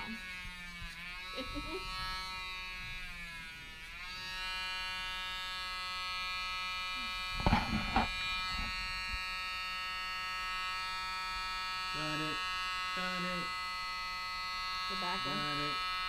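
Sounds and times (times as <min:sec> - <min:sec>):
rotary tool whining: 0:07.2 - 0:09.3.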